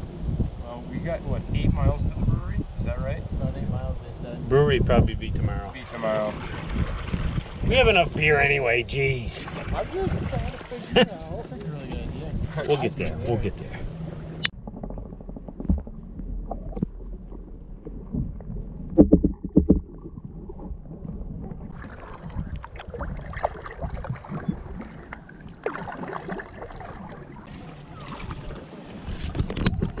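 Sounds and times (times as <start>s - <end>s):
underwater river water sloshing: 5.7s - 8.3s, 9.1s - 30.0s.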